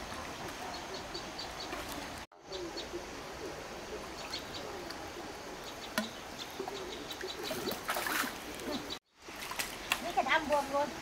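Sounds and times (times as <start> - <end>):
steady background hiss: 0.0 - 7.6
birds chirping: 0.0 - 11.0.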